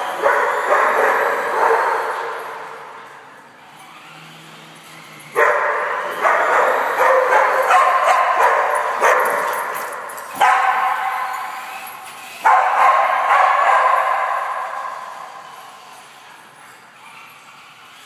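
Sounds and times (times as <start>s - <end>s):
dogs barking with echo: 0.0s - 3.2s, 5.3s - 16.2s.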